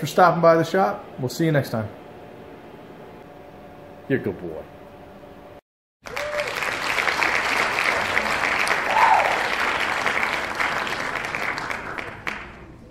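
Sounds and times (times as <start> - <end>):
crowd applauding: 6.0 - 12.9.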